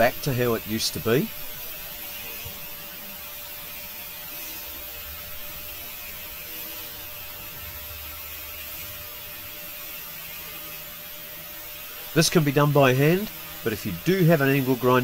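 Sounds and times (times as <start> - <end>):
angle grinder motor hum: 0.0 - 15.0.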